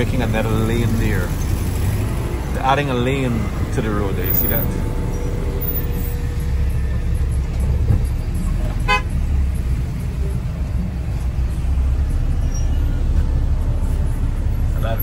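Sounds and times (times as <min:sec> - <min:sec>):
car driving rumble: 0:00.0 - 0:15.0
short vehicle horn toot: 0:08.8 - 0:09.2.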